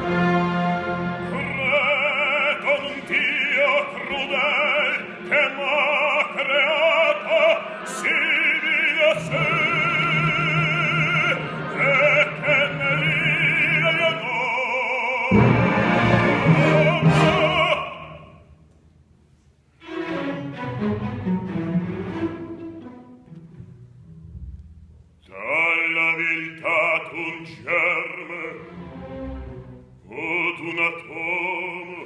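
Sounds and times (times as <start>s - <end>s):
orchestra playing: 0.0s - 18.4s, 19.8s - 24.8s, 27.8s - 30.1s
man singing opera: 1.1s - 18.5s, 25.2s - 29.0s, 30.0s - 32.0s.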